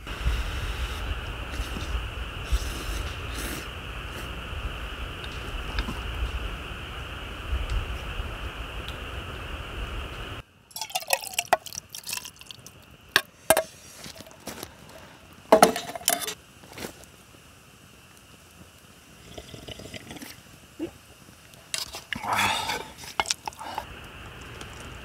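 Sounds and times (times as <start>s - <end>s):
liquid pouring and dripping: 10.7s - 13.3s.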